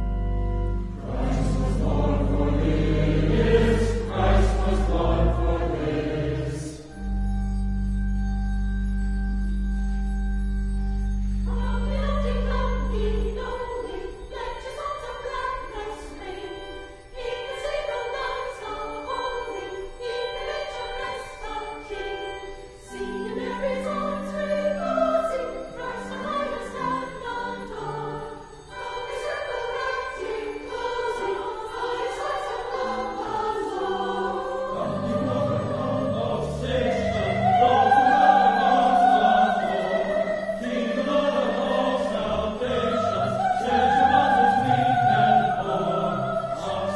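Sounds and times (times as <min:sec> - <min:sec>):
choir singing: 0:00.0 - 0:07.1, 0:11.4 - 0:46.9
instrumental accompaniment: 0:00.0 - 0:13.6.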